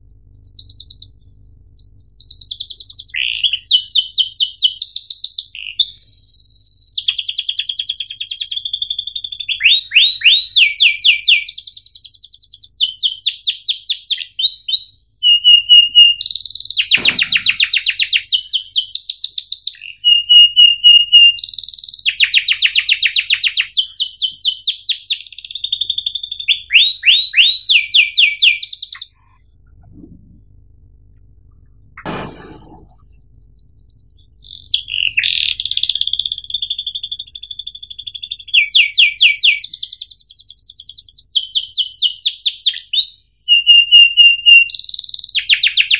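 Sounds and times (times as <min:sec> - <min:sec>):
canary singing trills: 0:00.0 - 0:29.8, 0:32.1 - 0:45.9.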